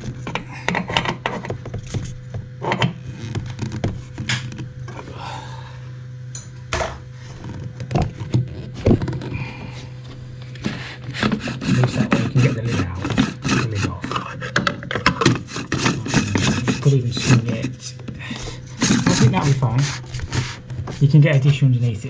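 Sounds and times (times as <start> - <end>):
clicks scraping and rubbing: 10.1 - 21.6.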